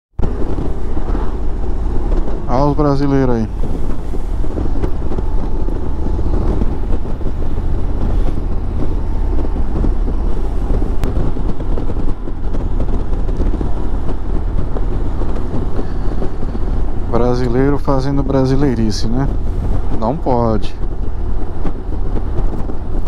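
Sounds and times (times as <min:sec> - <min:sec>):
motorcycle engine and road noise: 0:00.2 - 0:23.0
wind rushing over microphone: 0:00.2 - 0:23.0.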